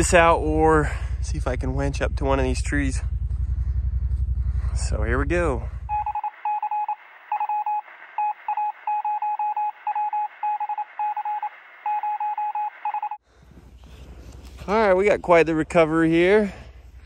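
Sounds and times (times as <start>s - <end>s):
short electronic beeps: 5.9s - 13.2s.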